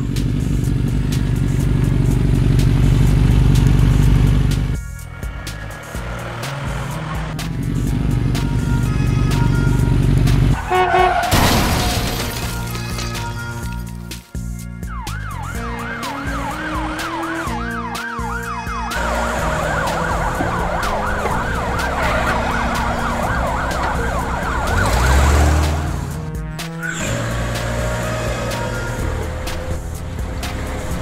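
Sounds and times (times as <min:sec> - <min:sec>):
background music: 0:00.0 - 0:31.0
cartoon sirens wailing: 0:10.6 - 0:11.4, 0:14.8 - 0:26.2, 0:26.8 - 0:29.8.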